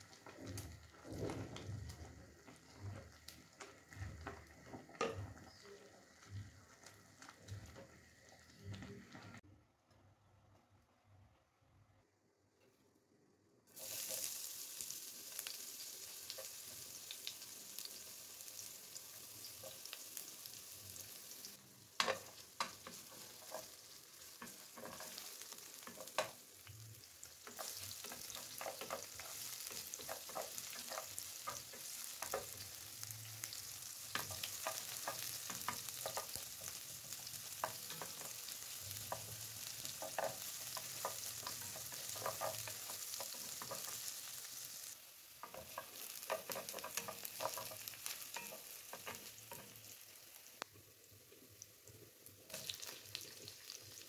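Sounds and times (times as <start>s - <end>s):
onions sizzling in oil: 0.0s - 9.4s, 13.7s - 54.0s
wooden spatula scraping a pan: 0.0s - 9.4s, 22.0s - 44.8s, 45.4s - 50.0s.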